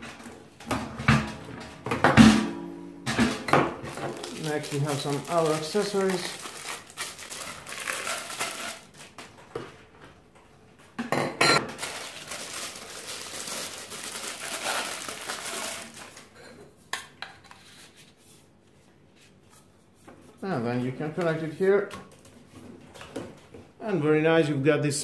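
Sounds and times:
plastic packaging rustling: 3.8s - 9.5s, 11.6s - 16.4s.

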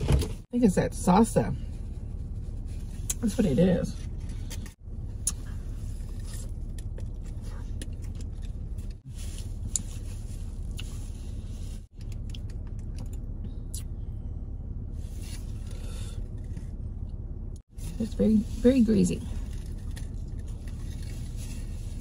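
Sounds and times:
car interior hum: 0.0s - 22.0s
person chewing food: 5.1s - 14.0s, 19.4s - 21.8s.

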